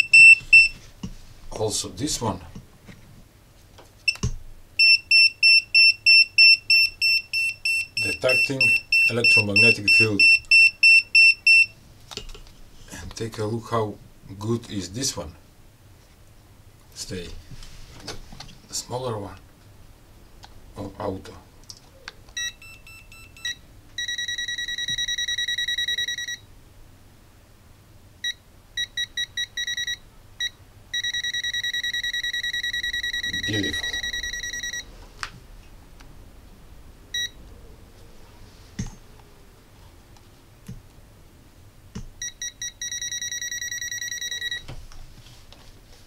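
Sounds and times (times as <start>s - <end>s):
high-pitched voltage detector beeping: 0.0s - 0.8s, 4.1s - 11.7s, 22.4s - 26.4s, 28.2s - 34.9s, 42.2s - 44.6s.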